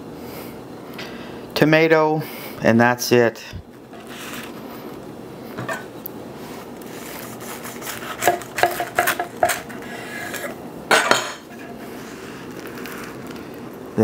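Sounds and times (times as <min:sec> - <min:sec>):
knife sawing through bread: 0:06.9 - 0:10.6
knife scraping on wooden board: 0:06.9 - 0:12.2.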